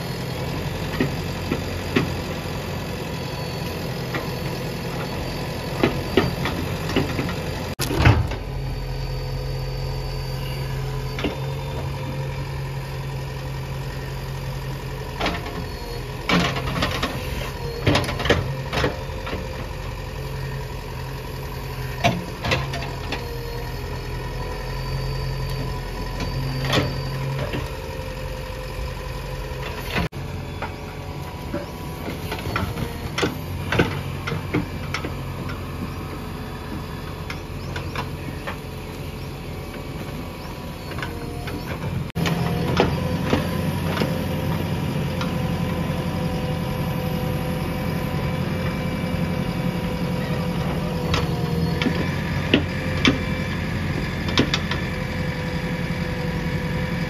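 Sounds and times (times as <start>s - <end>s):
diesel engine running: 0.0s - 57.0s
machine whine: 3.2s - 13.0s.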